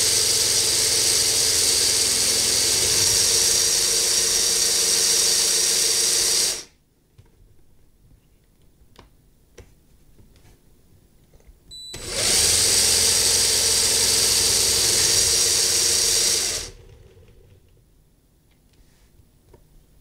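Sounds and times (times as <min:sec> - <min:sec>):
small electric motor whining: 0:00.0 - 0:06.7, 0:12.0 - 0:17.6.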